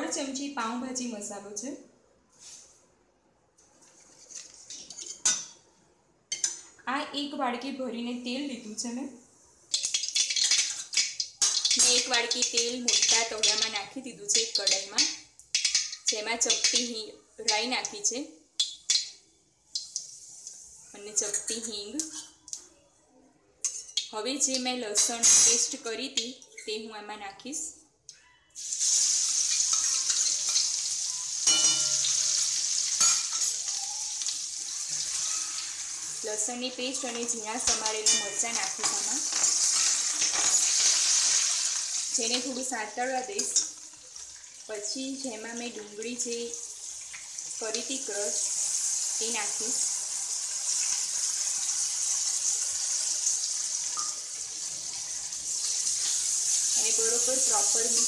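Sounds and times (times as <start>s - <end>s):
spatula stirring: 3.8s - 5.4s, 9.7s - 16.9s
garlic sizzling in hot oil: 9.7s - 22.2s, 23.6s - 26.2s, 28.6s - 58.0s.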